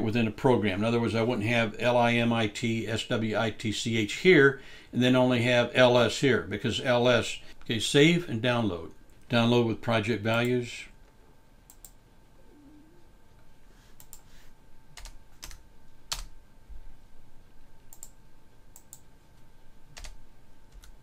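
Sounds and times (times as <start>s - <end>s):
keyboard and mouse clicks: 11.7s - 12.0s, 14.0s - 14.3s, 17.9s - 19.1s.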